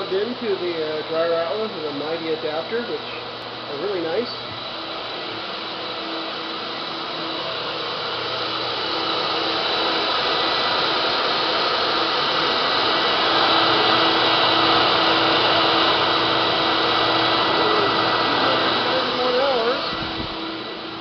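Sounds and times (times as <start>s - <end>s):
carpet cleaning machine running: 0.0s - 21.0s.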